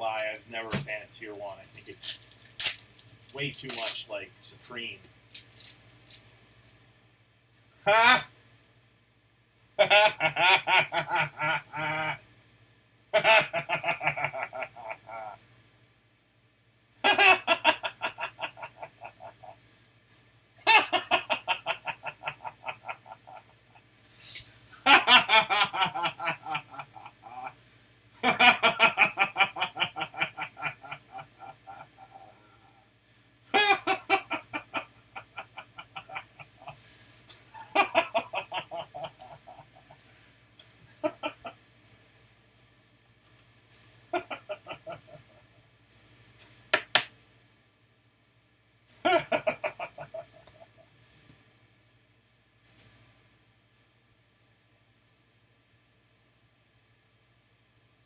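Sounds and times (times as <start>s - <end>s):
man laughing heartily: 9.8s - 12.2s, 13.2s - 15.4s, 17.0s - 19.6s, 20.6s - 23.8s, 24.8s - 27.6s, 28.2s - 32.8s, 33.5s - 36.8s, 37.4s - 40.0s, 40.9s - 41.6s, 44.1s - 45.5s, 48.9s - 50.8s.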